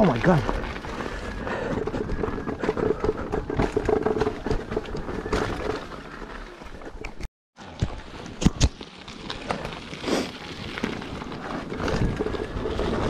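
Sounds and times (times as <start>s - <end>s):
knocks and rattles: 0.0s - 7.3s.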